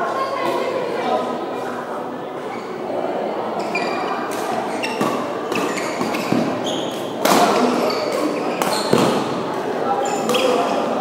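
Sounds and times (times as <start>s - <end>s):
echoing sports hall din: 0.0s - 11.0s
sneaker squeaks on court floor: 3.6s - 9.4s, 10.0s - 10.9s
racquet hitting shuttlecock: 4.3s - 9.4s.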